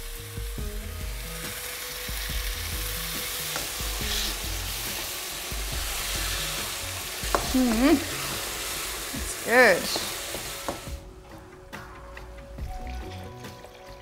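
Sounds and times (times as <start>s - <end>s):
food sizzling in frying pan: 0.0s - 11.0s.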